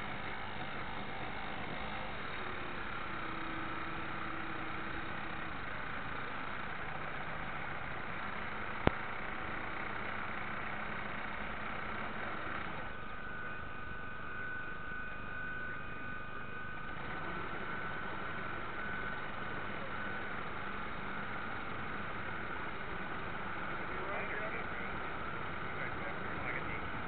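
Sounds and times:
model boat motor running: 0.0s - 7.5s, 16.8s - 27.0s
faint motor whine: 0.0s - 27.0s.

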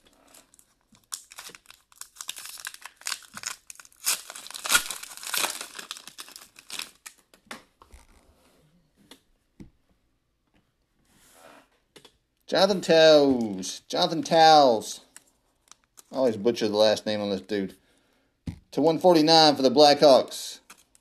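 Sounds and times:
cards rustling: 0.3s - 7.2s
foil wrapper tearing and crinkling: 0.3s - 7.2s, 20.7s - 21.0s.

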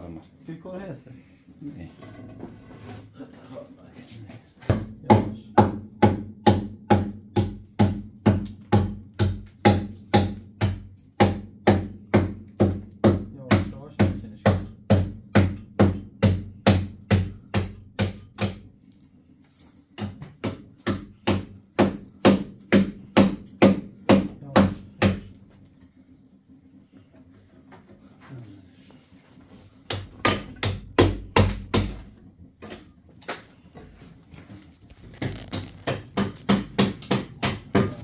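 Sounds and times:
hammer striking plaster wall: 4.6s - 18.7s, 19.9s - 25.4s, 29.8s - 33.5s, 35.0s - 38.0s.

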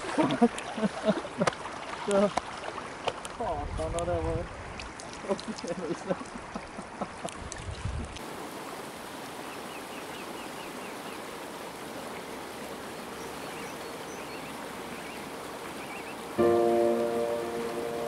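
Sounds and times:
river rapids rushing: 8.2s - 18.0s.

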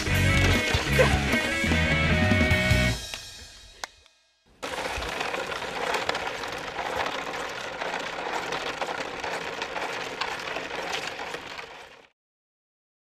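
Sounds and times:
plastic sled scraping on asphalt: 0.0s - 2.6s, 4.6s - 12.1s.

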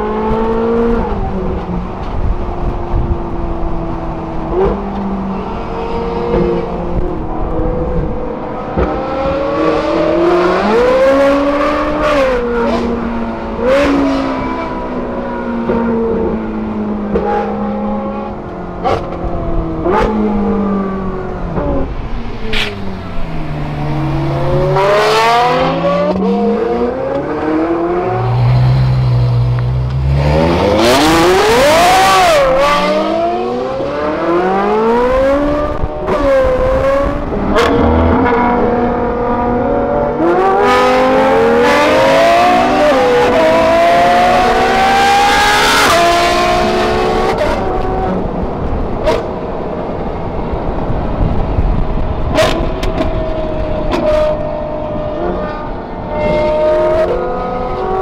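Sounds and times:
sports car engines revving: 0.0s - 58.0s.

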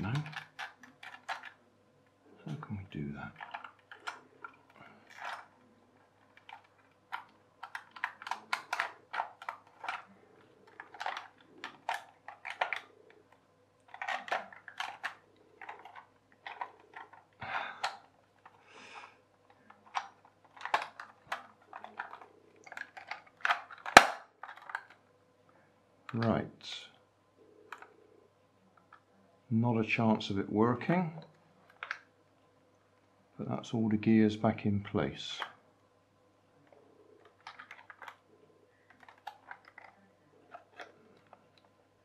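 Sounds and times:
plastic gears clicking and rattling: 0.0s - 1.6s, 3.2s - 12.9s, 13.9s - 18.6s, 19.6s - 25.0s, 37.2s - 38.2s, 38.9s - 41.4s.

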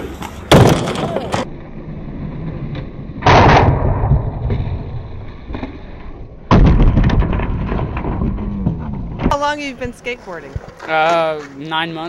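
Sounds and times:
skateboard slamming down: 0.5s - 1.5s, 6.5s - 9.3s
skateboard wheels rolling on asphalt: 9.9s - 12.0s.

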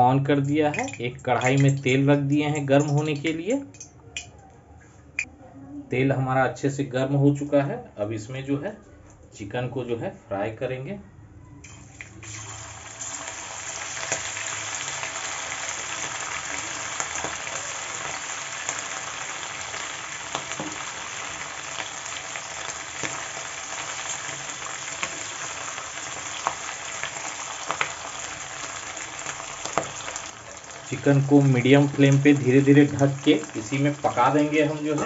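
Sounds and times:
chicken frying in hot oil: 11.7s - 35.0s.

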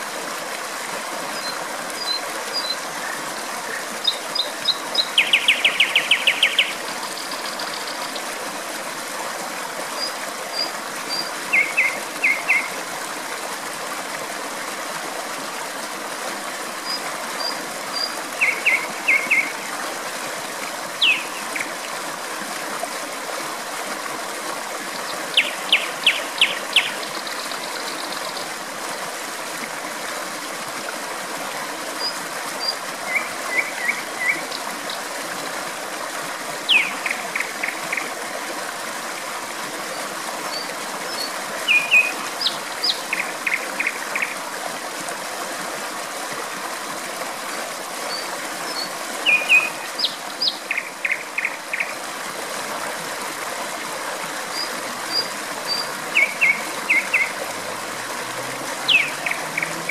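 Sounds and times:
flowing water rushing: 0.0s - 59.9s
nightingale singing: 4.0s - 6.8s, 11.1s - 12.7s, 18.0s - 19.5s, 21.0s - 21.4s, 25.4s - 28.2s, 36.7s - 37.8s, 41.2s - 43.9s, 48.8s - 51.9s, 55.1s - 57.3s, 58.9s - 59.9s.

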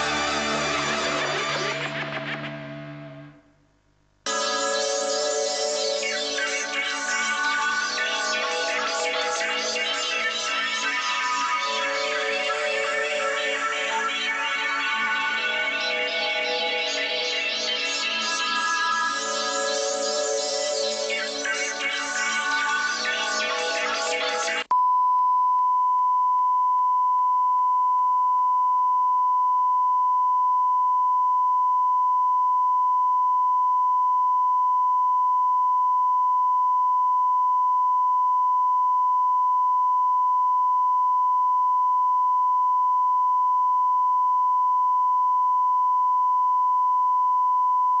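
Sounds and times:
electronic ident music: 0.0s - 3.5s, 4.3s - 24.7s
single-pitch test tone: 24.7s - 48.0s.

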